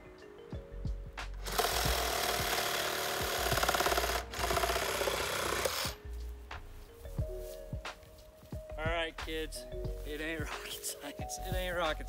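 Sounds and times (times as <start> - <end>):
power saw cutting wood: 1.4 - 6.0.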